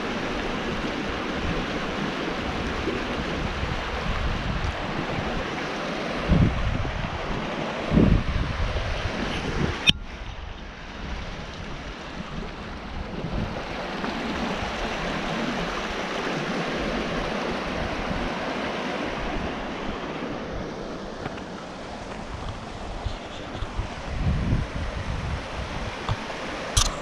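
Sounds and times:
river water rushing over rocks: 0:00.0 - 0:27.0
wind buffeting microphone: 0:00.0 - 0:27.0
sharp click: 0:26.1 - 0:27.0.

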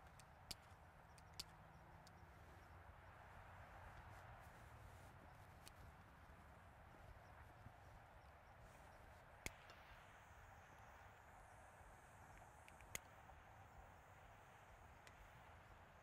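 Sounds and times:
faint outdoor ambience: 0:00.0 - 0:16.0.

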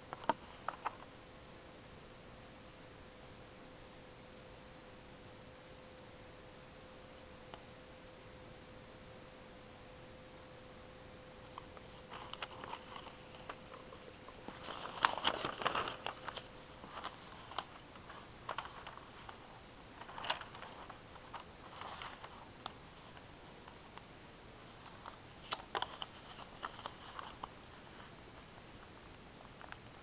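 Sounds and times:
paper pages rustling: 0:11.5 - 0:24.1, 0:24.7 - 0:28.1.

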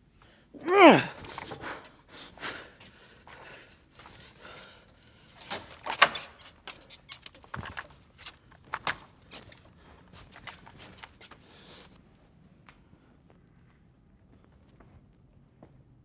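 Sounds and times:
door creaking open: 0:05.4 - 0:09.6.

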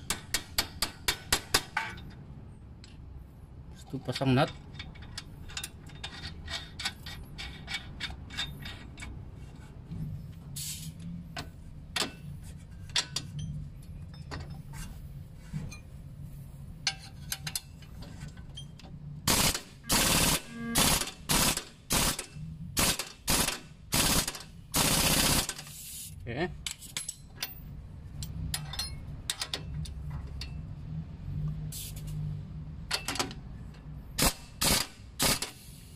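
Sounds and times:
impact wrench hammering bursts: 0:19.3 - 0:25.8, 0:34.2 - 0:35.6.

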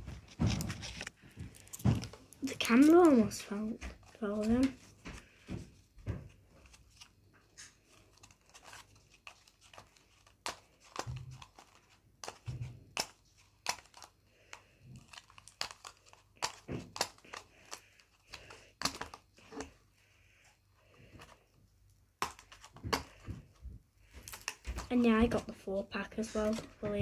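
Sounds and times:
packaging crinkling: 0:00.0 - 0:05.6, 0:06.5 - 0:21.5, 0:22.2 - 0:25.2.

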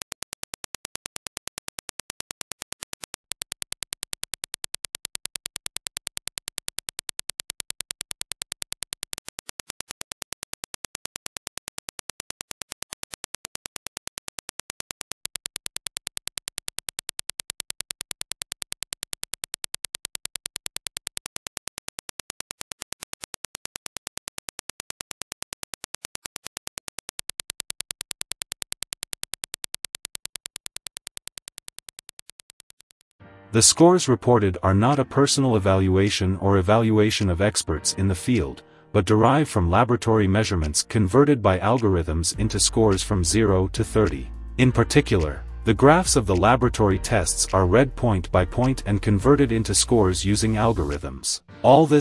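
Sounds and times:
rapid train of sharp clicks: 0:00.0 - 0:33.2.

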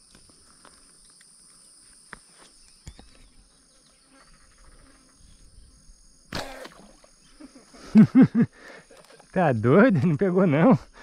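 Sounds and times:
insects buzzing: 0:00.0 - 0:11.0
slingshot arrow shot into water: 0:06.3 - 0:07.2.

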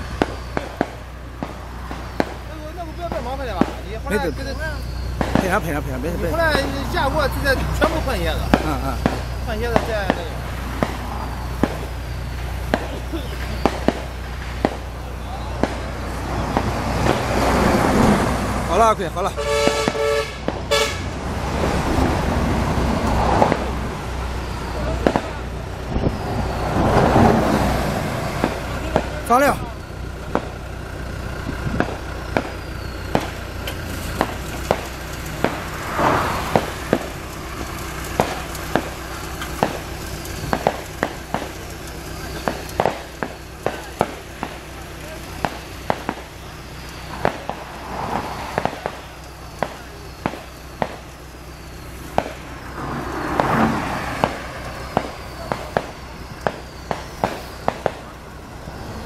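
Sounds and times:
asphalt cracking and clacking: 0:00.0 - 0:59.0
truck engine hum: 0:00.0 - 0:59.0
rushing hiss: 0:32.0 - 0:59.0.

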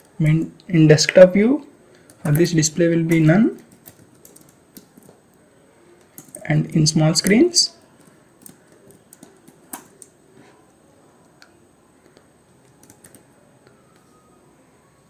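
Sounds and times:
computer keyboard typing: 0:01.9 - 0:05.2, 0:06.0 - 0:10.3, 0:12.0 - 0:14.1.

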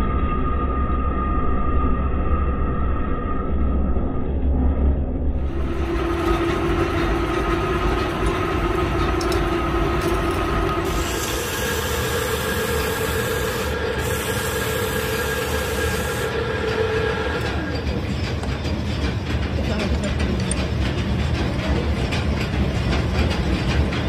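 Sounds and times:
metal lathe running: 0:05.4 - 0:24.0
high hiss: 0:10.9 - 0:16.4.

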